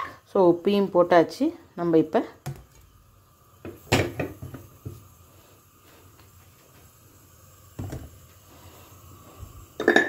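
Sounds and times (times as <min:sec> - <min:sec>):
metal bowl clink: 0:09.8 - 0:10.0.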